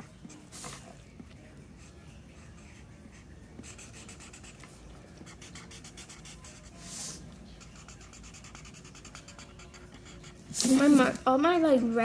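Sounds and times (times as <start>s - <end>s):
marker scribbling on paper: 1.7s - 11.2s.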